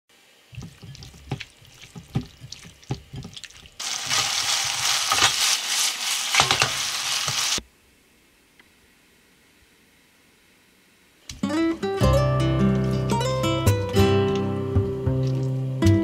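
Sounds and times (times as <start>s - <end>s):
hands squishing raw chicken: 0.6s - 6.9s
chicken sizzling in frying pan: 3.8s - 7.6s.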